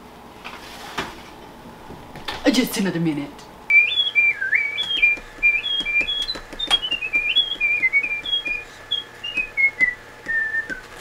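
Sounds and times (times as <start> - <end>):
woman whistling a tune: 3.7 - 11.0.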